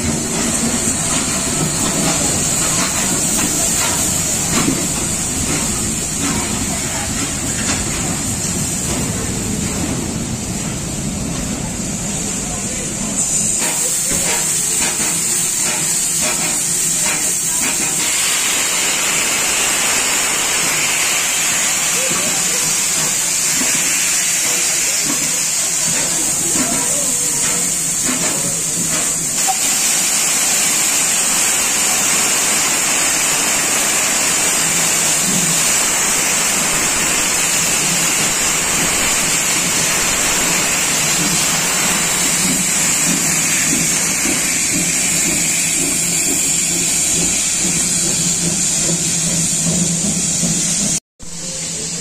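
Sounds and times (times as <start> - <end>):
steam locomotive hissing: 0.0 - 52.0.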